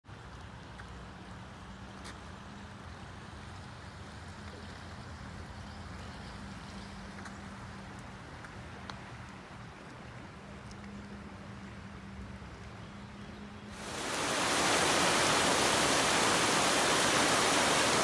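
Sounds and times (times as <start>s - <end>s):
water rushing over rocks: 13.8s - 18.0s.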